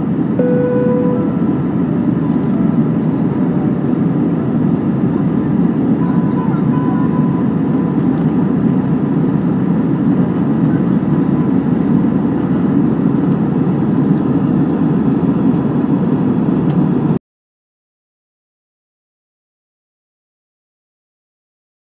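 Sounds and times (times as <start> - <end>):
airplane cabin engine rumble: 0.0 - 17.2.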